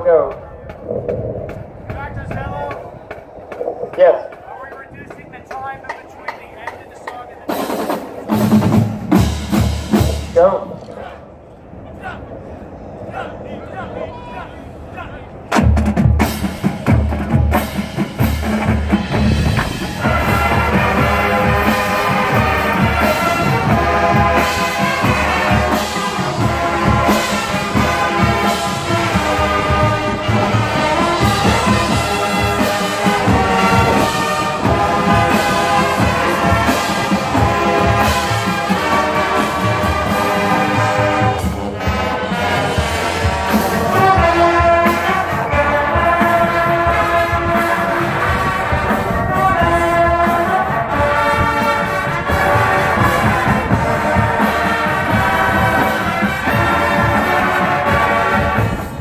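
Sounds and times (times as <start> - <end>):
marching drums: 0.2 - 10.6, 15.5 - 59.0
brass section playing: 16.2 - 59.0.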